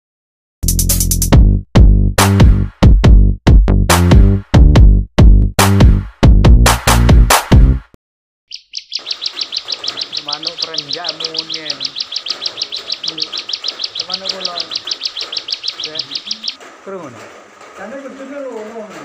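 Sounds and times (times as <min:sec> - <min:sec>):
electronic music beats: 0:00.6 - 0:07.8
songbird high chirps: 0:08.5 - 0:16.6.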